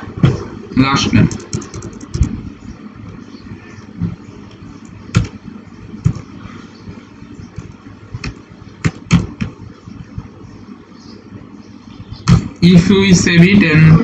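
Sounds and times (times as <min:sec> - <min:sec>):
keyboard key clicks: 0:01.3 - 0:02.4.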